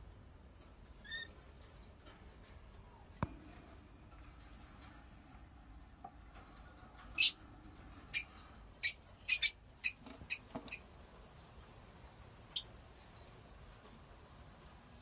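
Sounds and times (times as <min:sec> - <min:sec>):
lovebirds chirping: 0:07.2 - 0:07.4, 0:08.1 - 0:10.9.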